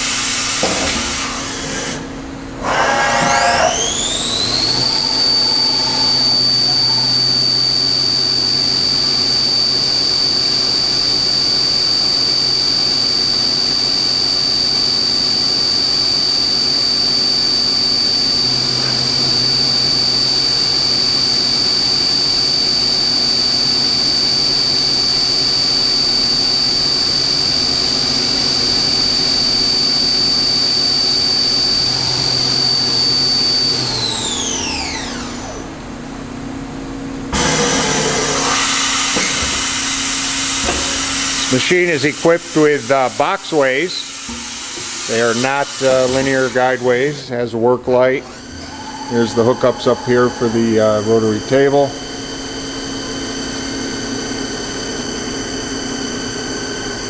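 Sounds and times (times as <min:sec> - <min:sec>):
high-pitched spindle whine: 0:00.0 - 0:35.9, 0:37.3 - 0:47.5, 0:48.1 - 0:57.0
low motor hum: 0:02.0 - 0:11.0, 0:48.2 - 0:55.0.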